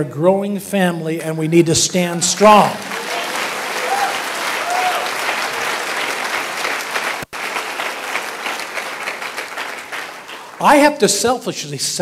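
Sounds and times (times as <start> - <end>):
congregation applauding: 2.4 - 11.1.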